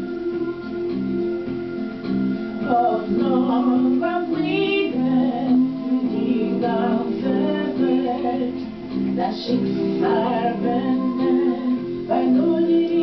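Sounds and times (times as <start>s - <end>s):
waltz on electronic keyboard: 0.0s - 13.0s
woman singing: 2.6s - 13.0s.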